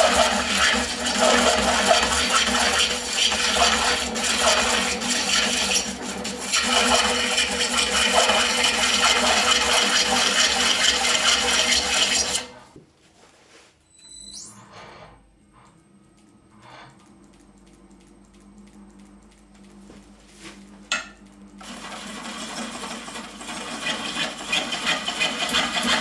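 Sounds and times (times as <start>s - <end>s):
gouge cutting wood: 0.0s - 12.5s, 22.2s - 26.0s
lathe running hum: 0.0s - 12.6s, 20.1s - 26.0s.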